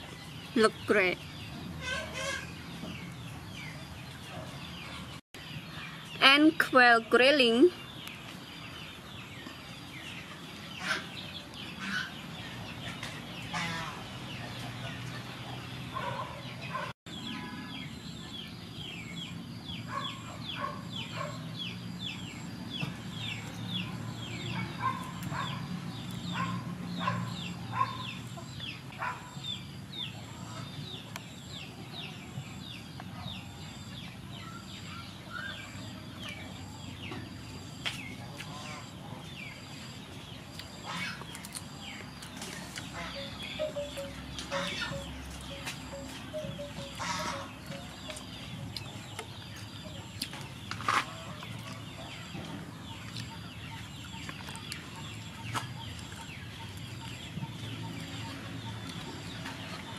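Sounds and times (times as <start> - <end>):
small birds chirping: 0.0 - 59.9
chickens clucking: 9.3 - 16.9, 35.2 - 59.9.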